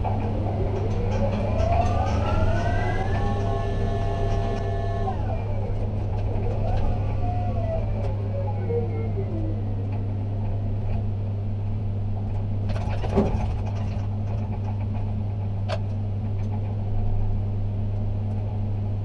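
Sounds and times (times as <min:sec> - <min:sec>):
crane machinery humming: 0:00.0 - 0:19.0
rattling clatter: 0:12.6 - 0:16.8.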